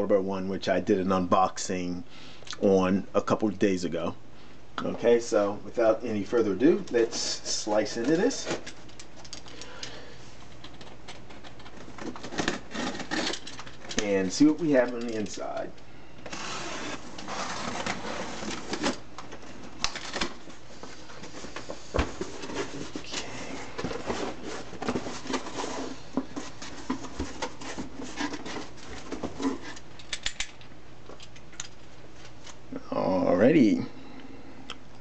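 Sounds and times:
cardboard scrapes and rustles: 16.3 - 19.0, 23.9 - 29.8.

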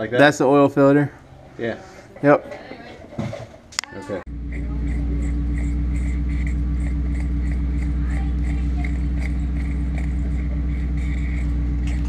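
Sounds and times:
motor humming: 4.3 - 12.0.

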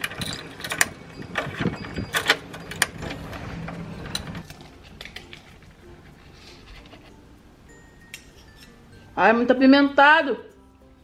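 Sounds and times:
keys jangling: 0.0 - 4.4.

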